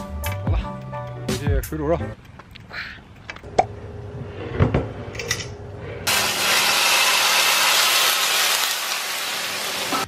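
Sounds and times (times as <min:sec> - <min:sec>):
hot oil sizzling: 0:06.1 - 0:10.0.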